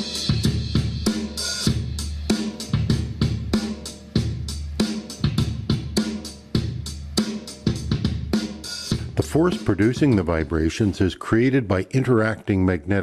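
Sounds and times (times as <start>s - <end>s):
drum kit music over loudspeaker: 0.0s - 11.6s
deep bass: 7.7s - 11.2s.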